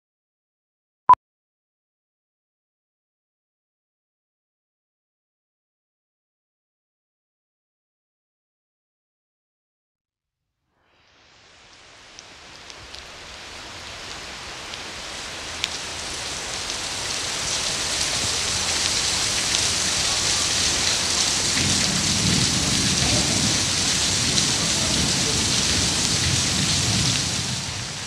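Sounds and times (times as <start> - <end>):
heavy rain pouring: 11.1 - 28.0
sharp drips: 13.9 - 27.1.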